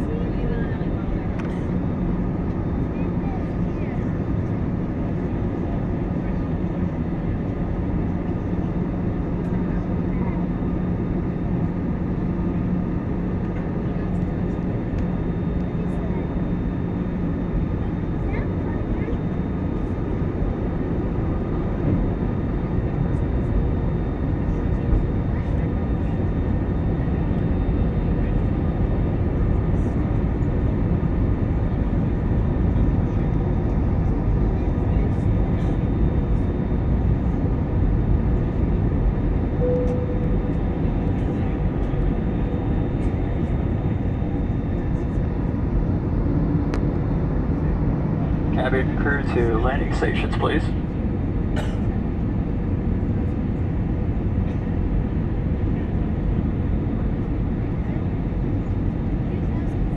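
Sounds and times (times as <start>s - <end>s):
airliner cabin drone: 0.0s - 59.9s
faint high whine: 39.5s - 43.2s.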